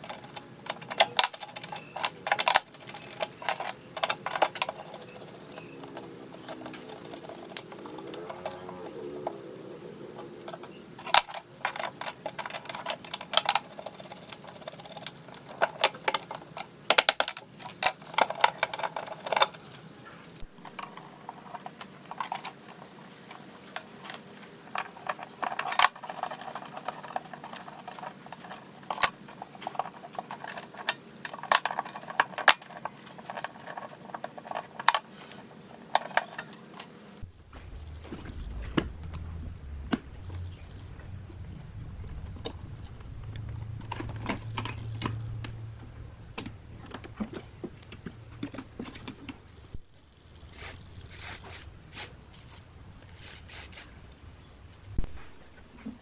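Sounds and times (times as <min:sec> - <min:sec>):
small metal clicks and rattles: 0:00.0 - 0:09.4, 0:10.1 - 0:37.0, 0:37.7 - 0:51.1
low hum: 0:37.2 - 0:53.2.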